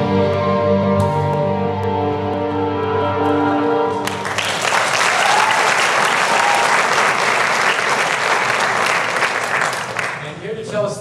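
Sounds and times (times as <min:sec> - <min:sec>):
sustained music: 0:00.0 - 0:05.2
audience applauding: 0:04.0 - 0:10.5.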